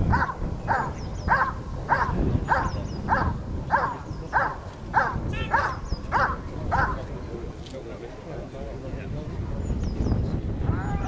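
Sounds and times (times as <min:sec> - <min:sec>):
dog barking: 0:00.1 - 0:07.0.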